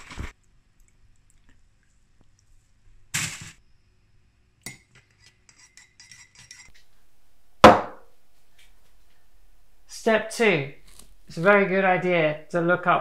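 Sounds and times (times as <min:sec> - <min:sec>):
loud sharp knock: 0:07.6 - 0:08.1.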